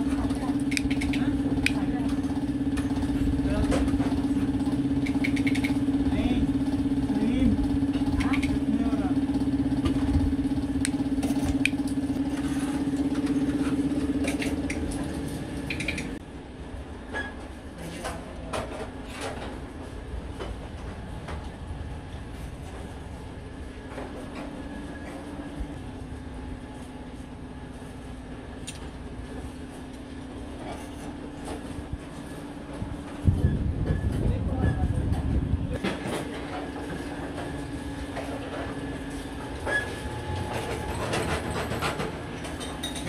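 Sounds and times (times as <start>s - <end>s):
motor running with flutter: 0.0s - 16.2s
mechanical drone with low hum: 0.0s - 43.0s.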